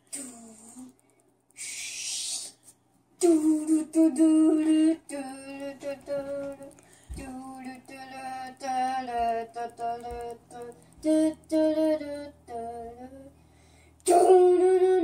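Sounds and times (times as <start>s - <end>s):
boy singing: 0.0s - 0.9s, 3.2s - 13.4s, 14.0s - 15.0s
breathy hiss: 1.6s - 2.8s.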